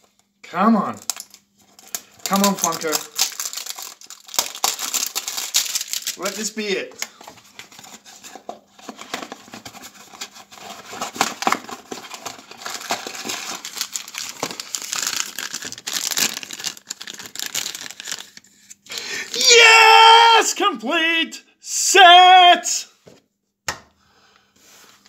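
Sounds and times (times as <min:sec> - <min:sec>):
foil wrapper crinkling and tearing: 0:00.9 - 0:06.7, 0:09.3 - 0:19.7.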